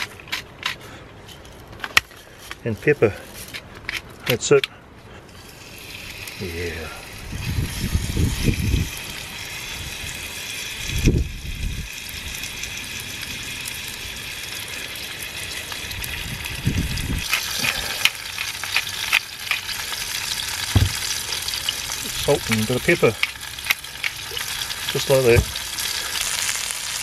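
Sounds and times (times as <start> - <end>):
meat sizzling in a frying pan: 5.4 - 27.0.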